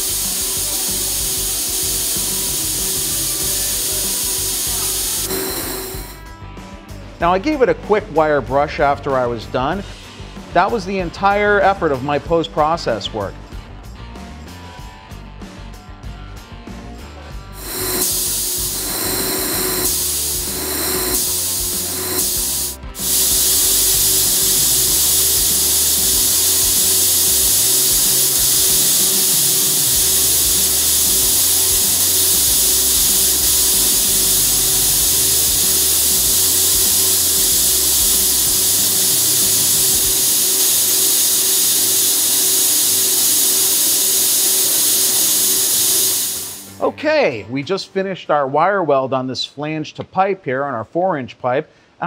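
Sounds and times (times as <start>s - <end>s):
laser welder hissing: 0.0s - 6.2s, 17.6s - 46.9s.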